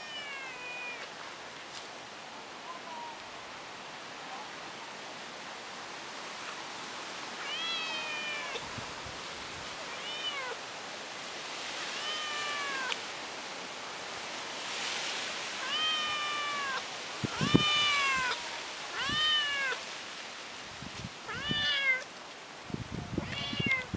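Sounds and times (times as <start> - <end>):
kitten meowing: 0.0 - 1.1, 7.4 - 8.6, 10.0 - 10.6, 12.0 - 13.0, 15.6 - 18.4, 19.0 - 19.8, 21.3 - 22.1, 23.2 - 23.9.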